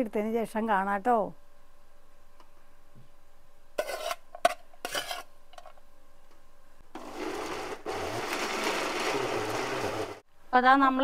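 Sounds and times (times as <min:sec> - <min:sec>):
electric mixer grinder running: 0:07.0 - 0:10.2.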